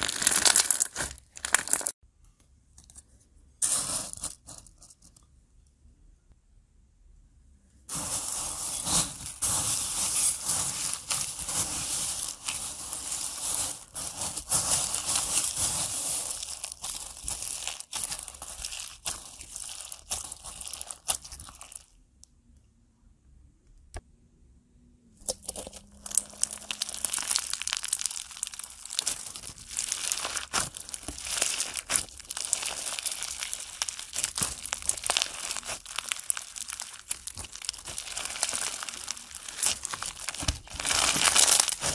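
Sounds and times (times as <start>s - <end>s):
crunchy slime crackling: 0.0s - 2.0s, 7.9s - 21.9s, 25.3s - 41.9s.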